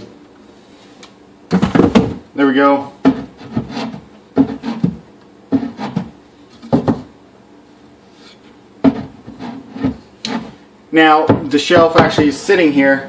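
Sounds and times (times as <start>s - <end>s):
wooden cabinet door knocking: 6.7s - 7.1s, 11.3s - 12.4s.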